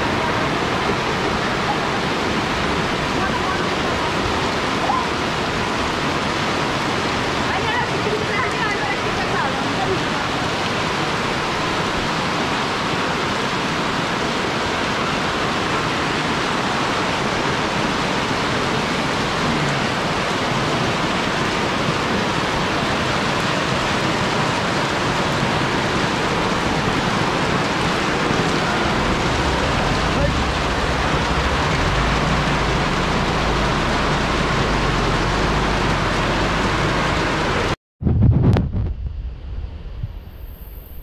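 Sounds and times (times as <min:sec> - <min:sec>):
floodwater rushing: 0:00.0 - 0:37.8.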